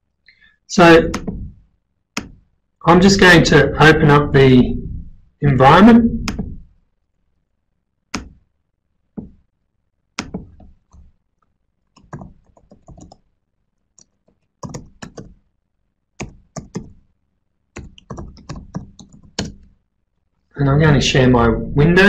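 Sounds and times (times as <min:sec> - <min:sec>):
computer keyboard typing: 0:08.1 - 0:08.4, 0:10.2 - 0:11.1, 0:11.9 - 0:13.3, 0:14.0 - 0:15.4, 0:16.2 - 0:17.0, 0:17.7 - 0:19.7.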